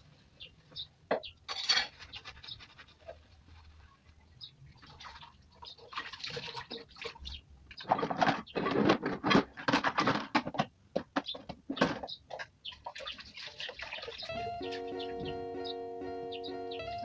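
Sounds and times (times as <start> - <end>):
dishes and utensils clattering: 1.2 - 2.1
water splashing in sink: 4.8 - 7.2, 12.8 - 14.2.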